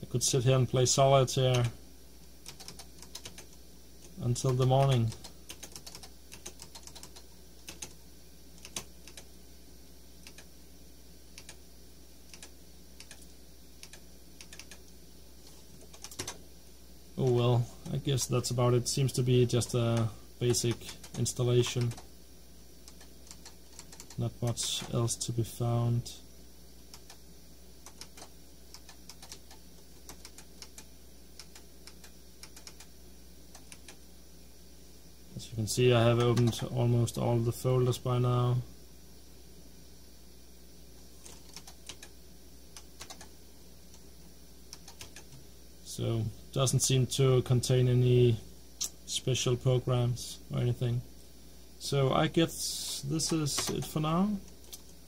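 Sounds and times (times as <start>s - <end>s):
faint low hum: 0.0s - 55.0s
keyboard keys clicking: 4.4s - 8.0s, 22.9s - 25.0s, 42.8s - 43.3s.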